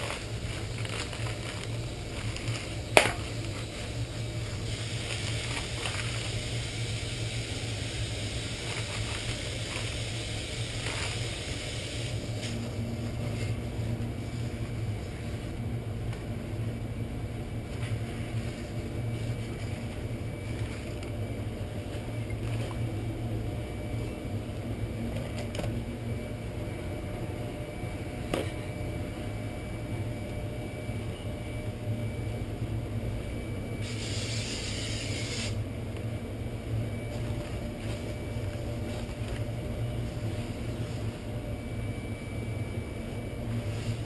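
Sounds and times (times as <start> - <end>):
steady low hum: 0.0 - 44.0
aerosol spray hissing: 4.6 - 12.6, 33.8 - 35.6.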